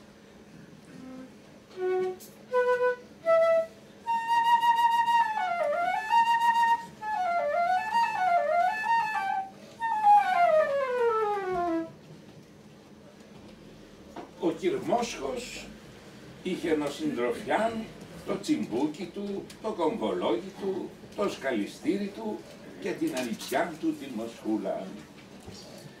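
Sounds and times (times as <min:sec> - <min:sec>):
solo flute: 0:00.9 - 0:12.0.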